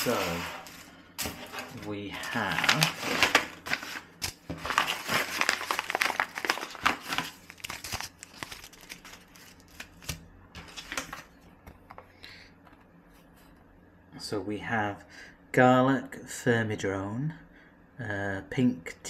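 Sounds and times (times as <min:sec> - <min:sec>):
paper bags crinkling: 0:00.0 - 0:11.3.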